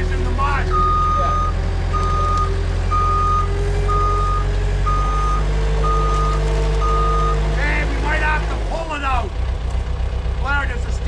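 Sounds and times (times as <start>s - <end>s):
skid steer engine drone: 0.0s - 11.0s
backup alarm beeping: 0.7s - 7.4s.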